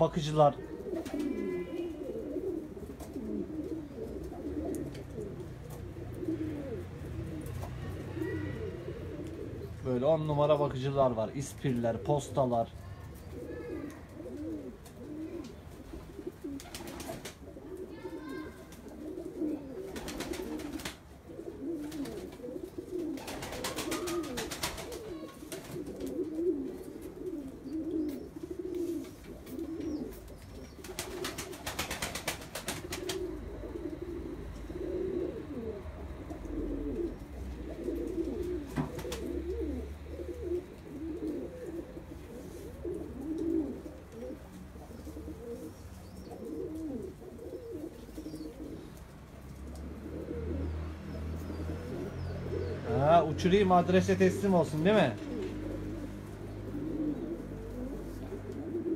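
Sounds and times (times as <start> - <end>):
pigeons cooing: 0.0 - 58.9
rustling noise: 24.0 - 31.2.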